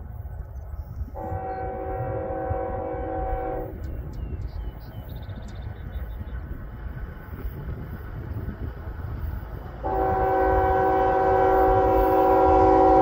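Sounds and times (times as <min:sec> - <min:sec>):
locomotive air horn: 0:01.2 - 0:03.8, 0:09.8 - 0:13.0.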